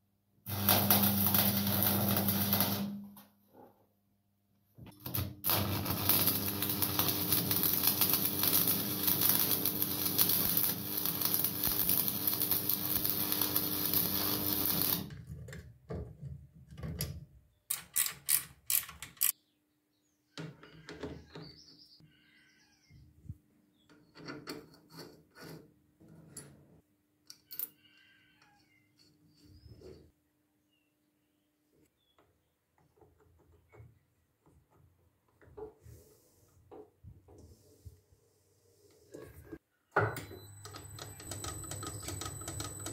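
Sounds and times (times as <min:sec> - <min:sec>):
arc welder crackling hiss: 0:00.5 - 0:03.0, 0:04.9 - 0:15.1.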